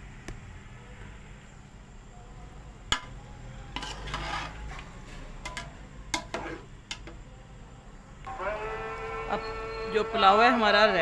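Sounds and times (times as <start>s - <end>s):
spoon stirring in metal pot: 2.9s - 7.2s.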